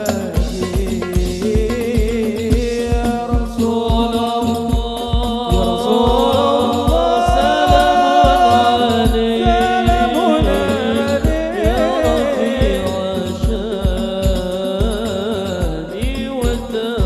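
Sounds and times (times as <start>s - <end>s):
frame drum and bass drum beat: 0.0s - 17.0s
person singing melody: 3.6s - 17.0s.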